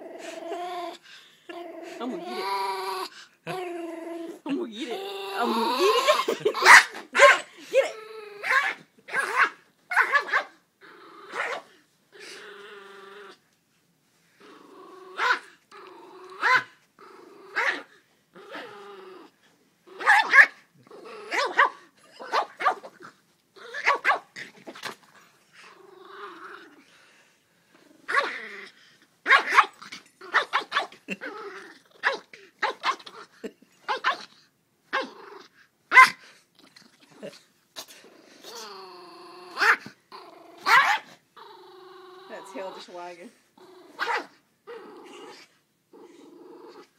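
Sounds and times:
dog growling: 0.0s - 8.7s, 10.8s - 13.4s, 14.4s - 24.8s, 25.6s - 29.0s, 29.7s - 33.6s, 35.0s - 35.6s, 36.3s - 46.9s
dog barking and yapping: 6.2s - 10.6s, 11.3s - 11.7s, 15.2s - 15.5s, 16.4s - 16.8s, 17.5s - 17.9s, 20.0s - 20.6s, 21.3s - 23.0s, 23.7s - 24.4s, 29.2s - 31.0s, 32.0s - 33.2s, 33.8s - 34.3s, 35.9s - 36.2s, 39.5s - 40.0s, 40.6s - 41.2s, 44.0s - 44.4s.

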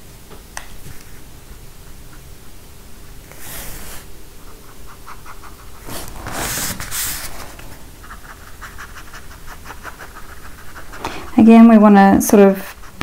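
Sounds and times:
brush scratching on paper: 3.3s - 13.0s.

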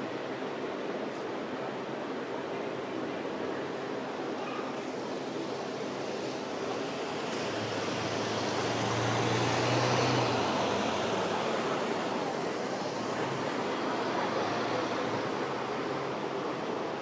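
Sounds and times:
busy bus station noise: 0.0s - 17.0s
bus diesel engine passing: 4.9s - 17.0s.

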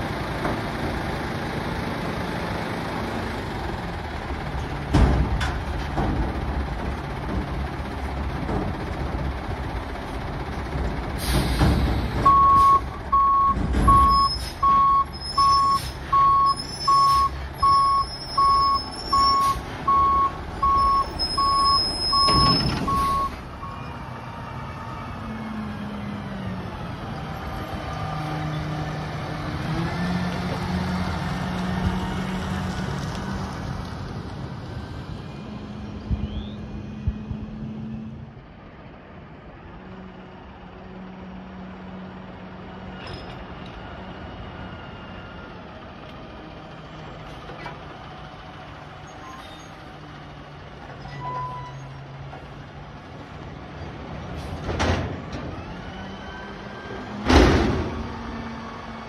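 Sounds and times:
air brake hiss: 11.2s - 12.8s
truck reverse alarm beeping: 12.2s - 23.9s
high squeals: 20.6s - 23.3s.

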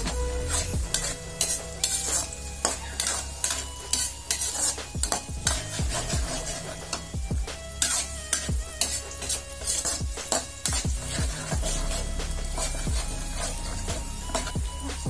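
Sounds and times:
light sizzle of frying: 0.0s - 15.0s
metal spatula scraping wok: 0.0s - 15.0s.

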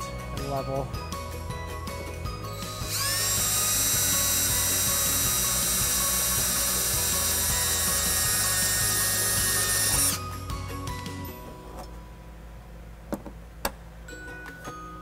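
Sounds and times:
cordless drill whining: 2.5s - 10.5s.

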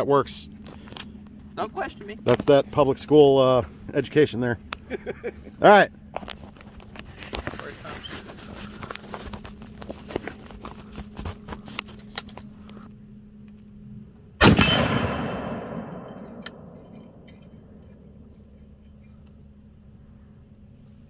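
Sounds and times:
rifle shot echoing: 14.4s - 16.9s.

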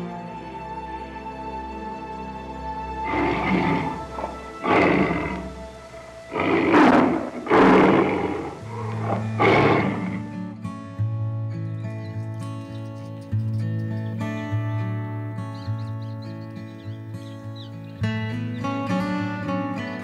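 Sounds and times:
background music: 0.0s - 20.0s
tiger roaring: 3.0s - 10.4s.

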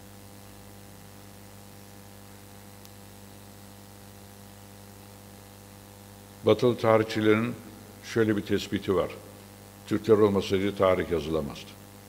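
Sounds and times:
electrical mains hum: 0.0s - 12.0s
person speaking: 6.4s - 11.8s.

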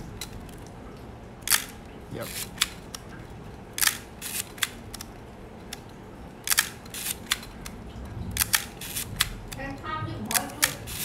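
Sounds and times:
film-advance lever clicks: 3.8s - 7.8s.

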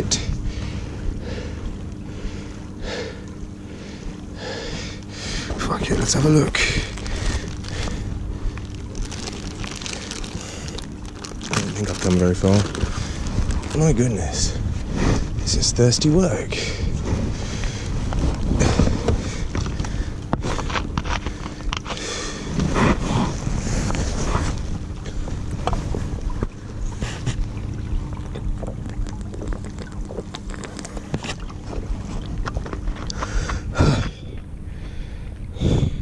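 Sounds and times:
faint steady hum: 0.0s - 36.0s
wind buffeting microphone: 5.4s - 21.7s, 31.4s - 36.0s
kayak knocking and scraping: 8.7s - 13.8s, 16.9s - 33.6s.

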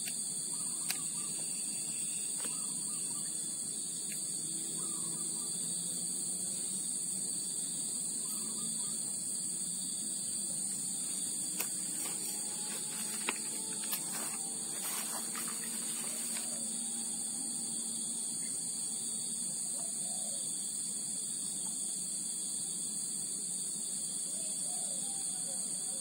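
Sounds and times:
insect chorus drone: 0.0s - 26.0s.

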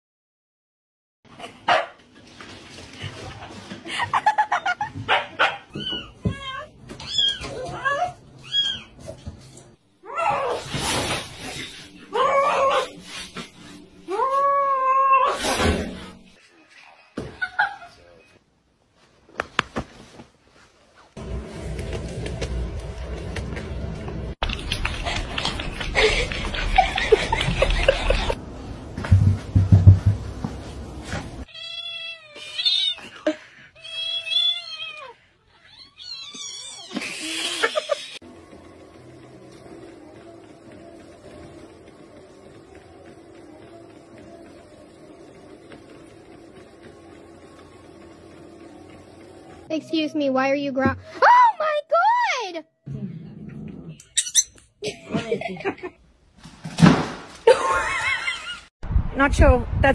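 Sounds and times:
cats yowling: 12.1s - 13.0s.

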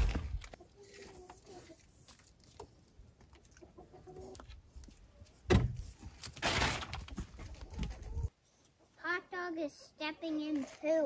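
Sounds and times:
faint farm animal calls: 0.6s - 2.1s.

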